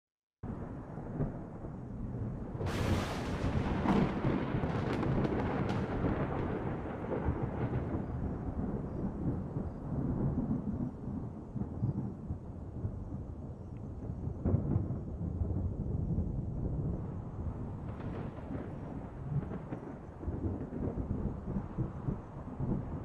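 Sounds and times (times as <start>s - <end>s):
rumbling thunder-like noise: 0.4s - 23.0s
crackles: 2.6s - 12.2s.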